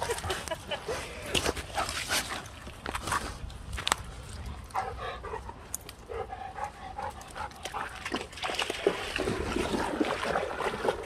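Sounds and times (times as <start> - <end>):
dog panting: 4.7 - 8.0.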